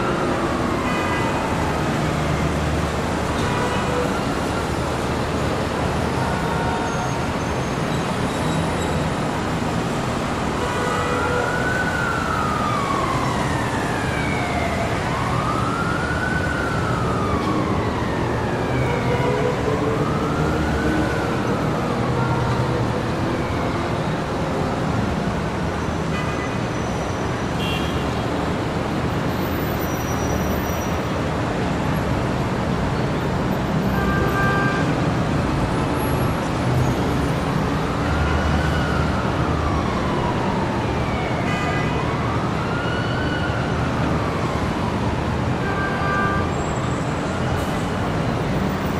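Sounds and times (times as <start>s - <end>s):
emergency siren wailing: 0.0s - 8.2s, 9.0s - 26.0s, 27.0s - 48.9s
city traffic noise: 0.0s - 48.9s
car horn: 27.6s - 28.1s.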